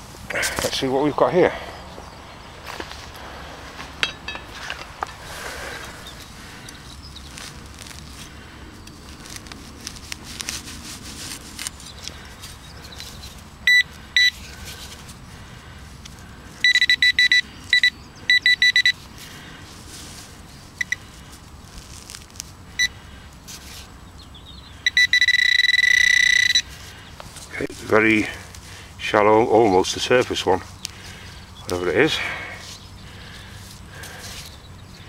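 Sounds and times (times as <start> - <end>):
soil scraping: 2.6 - 16.3, 18.8 - 23.9, 26.2 - 34.6
pinpointer beeping: 13.7 - 14.4, 16.6 - 19.0, 24.8 - 26.7.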